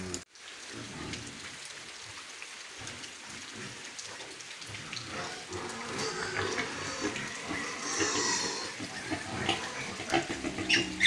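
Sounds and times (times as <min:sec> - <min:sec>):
rain pattering: 0:00.0 - 0:11.0
pig calls: 0:02.9 - 0:11.0.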